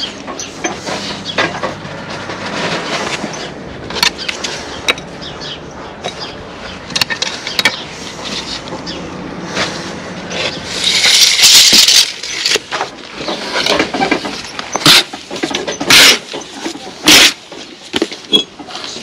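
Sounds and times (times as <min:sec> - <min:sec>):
trowel scraping mortar: 0:09.6 - 0:19.0.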